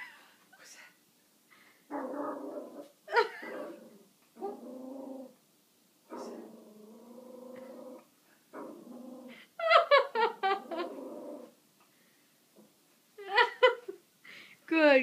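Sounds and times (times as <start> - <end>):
puppy growling: 1.9 - 5.4, 6.1 - 9.5, 10.4 - 11.6.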